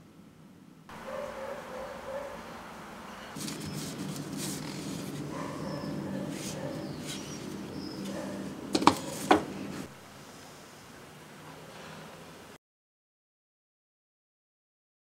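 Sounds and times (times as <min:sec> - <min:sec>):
steady low hum: 0:00.0 - 0:12.6
rustling and clicks: 0:03.4 - 0:05.5
wooden knocks: 0:08.7 - 0:09.5.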